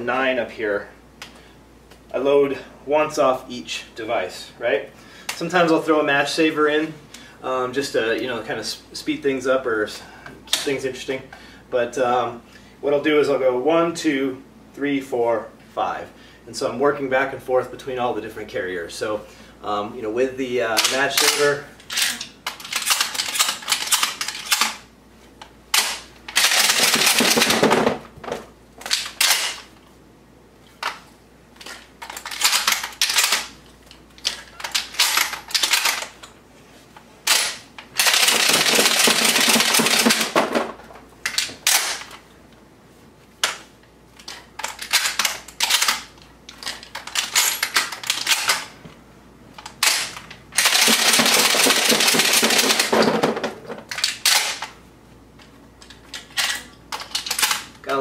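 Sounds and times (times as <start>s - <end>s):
rapid rattling of shells: 25.8s - 27.9s, 31.6s - 33.6s, 37.3s - 40.7s, 49.8s - 54.6s.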